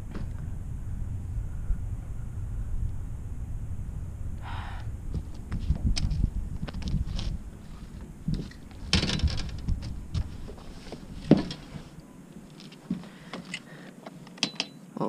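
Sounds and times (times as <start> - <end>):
low rumble: 0.0 - 12.6
rustling: 4.8 - 14.4
knocks and clicks of gear: 8.3 - 11.8, 12.8 - 14.8.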